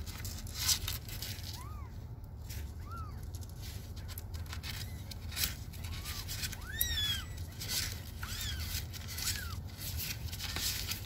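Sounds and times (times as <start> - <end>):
kitten mewing: 4.7 - 11.0.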